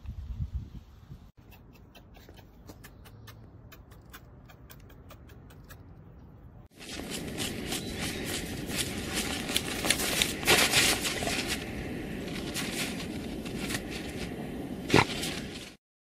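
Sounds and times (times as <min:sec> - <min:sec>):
dogs digging in crusted snow: 0:06.7 - 0:15.8.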